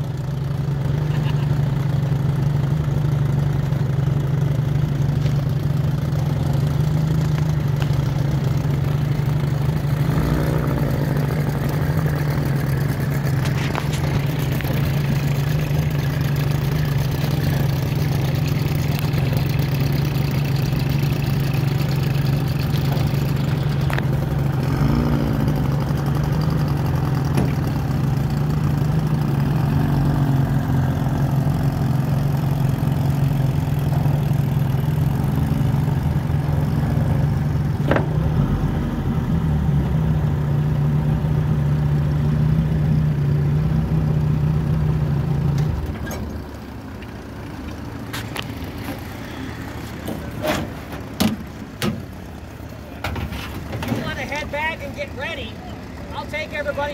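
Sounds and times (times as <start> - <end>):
outboard motor running: 0.0 - 56.9.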